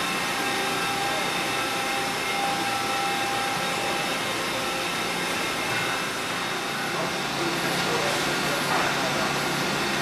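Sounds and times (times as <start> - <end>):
high whining tones: 0.0 - 7.8
machinery whirring and hissing: 0.0 - 10.0.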